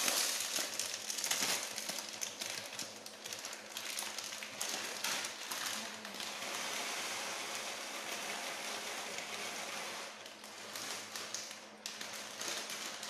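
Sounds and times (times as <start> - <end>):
plastic packet crinkling: 0.0 - 6.3, 10.2 - 13.0.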